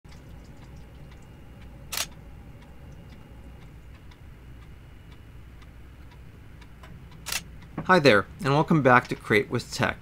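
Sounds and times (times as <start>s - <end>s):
steady low hum: 0.1s - 10.0s
camera shutter clack: 7.3s - 7.5s.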